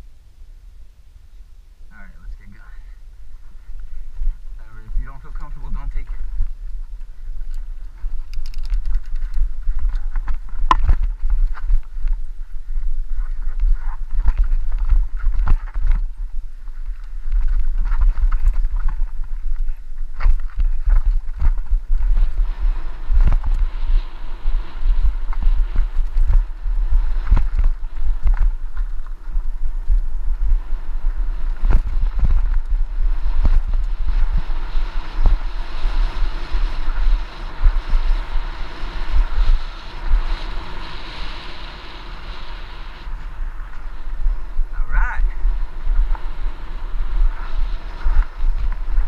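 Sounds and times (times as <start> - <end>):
low rumble: 0.0 - 49.0
wind rushing over microphone: 0.0 - 49.0.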